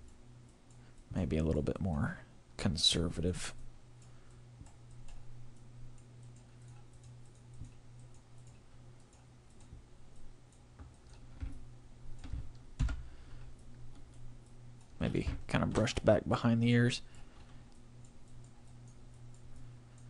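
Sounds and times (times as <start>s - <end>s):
low electrical hum: 0.0s - 20.0s
computer mouse clicks: 4.0s - 11.6s.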